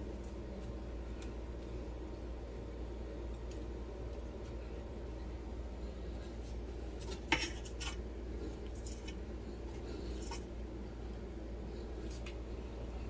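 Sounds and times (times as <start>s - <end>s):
steady low hum: 0.0s - 13.0s
plastic spoon scraping a plate: 7.0s - 8.0s.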